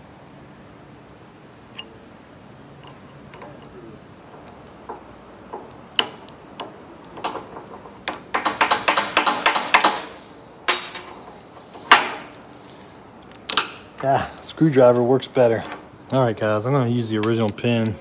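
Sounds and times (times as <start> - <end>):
metal knocks: 4.3 - 10.1.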